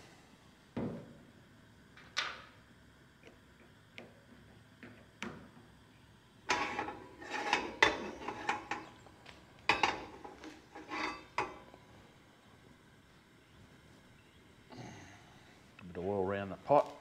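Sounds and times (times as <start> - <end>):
pan and utensils clattering: 6.5 - 9.0, 9.7 - 11.7.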